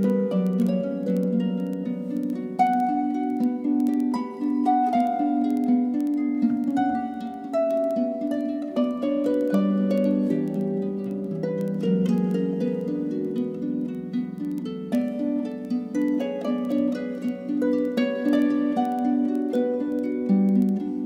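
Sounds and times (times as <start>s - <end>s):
plucked string music: 0.0s - 21.0s.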